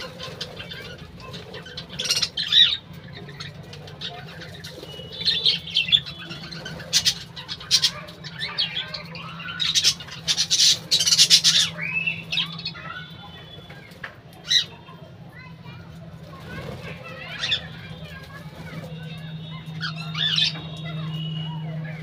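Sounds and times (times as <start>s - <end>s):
budgerigars chirping: 0.0s - 13.6s
wings flapping: 16.2s - 20.3s.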